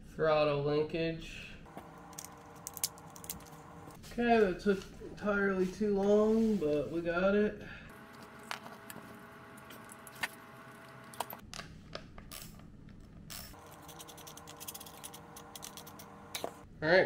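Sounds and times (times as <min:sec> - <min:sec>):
small metal parts clicking: 0:02.1 - 0:03.6, 0:13.3 - 0:16.1.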